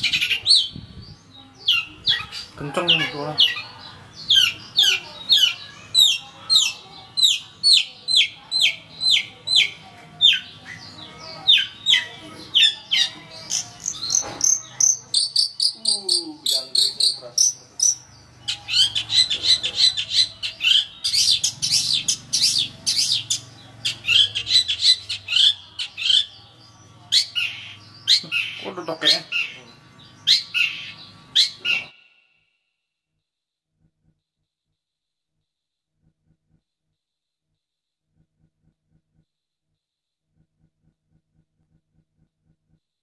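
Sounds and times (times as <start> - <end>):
shrike singing: 0.0 - 32.4.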